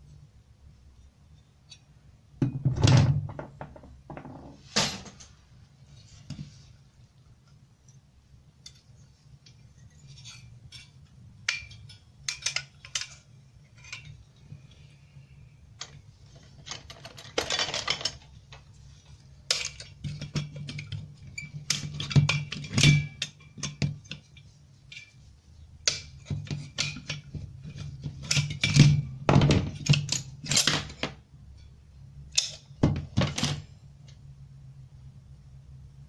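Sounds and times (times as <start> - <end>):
low steady hum: 0.0 - 36.0
metal parts clicking and clinking: 10.0 - 14.2, 15.8 - 18.3, 19.5 - 25.2, 29.6 - 31.1.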